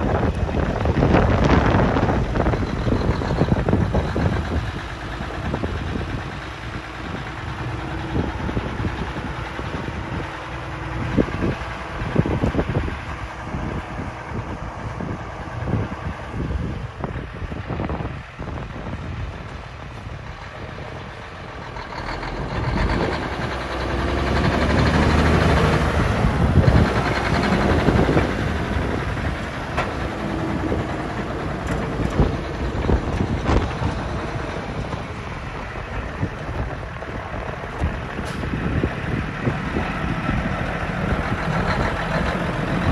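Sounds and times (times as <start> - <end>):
diesel truck engine idling: 0.0 - 42.9.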